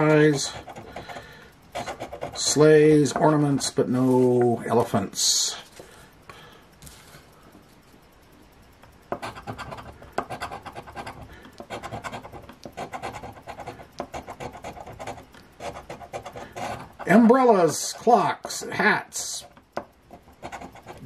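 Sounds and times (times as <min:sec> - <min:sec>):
coin scratching lottery ticket: 0:00.0 - 0:03.7, 0:09.2 - 0:17.8, 0:19.1 - 0:21.0.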